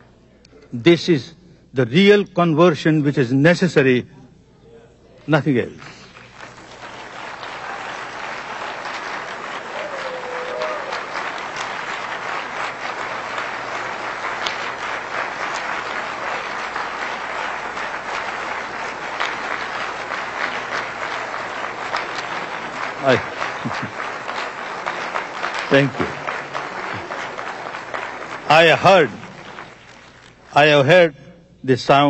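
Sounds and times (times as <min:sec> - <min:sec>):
large audience applauding: 0:05.8 - 0:30.8.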